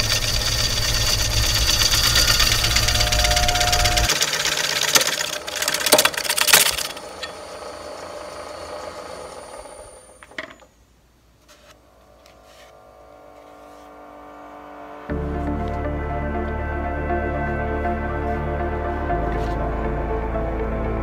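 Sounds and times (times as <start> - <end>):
gouge scraping wood on a lathe: 0.0 - 9.4
wood lathe running: 0.0 - 10.4.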